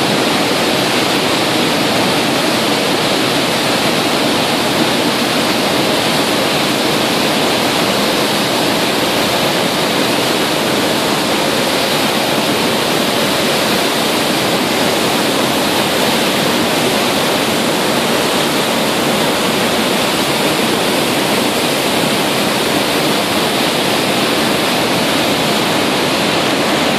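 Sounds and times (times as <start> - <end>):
ship wake rushing water: 0.0 - 26.9.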